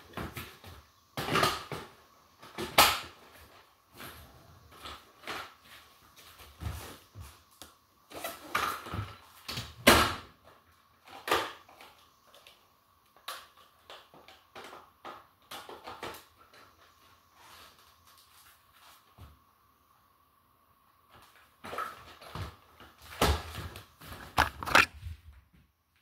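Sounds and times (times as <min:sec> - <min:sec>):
plastic clicks and rattles: 0:24.2 - 0:24.9.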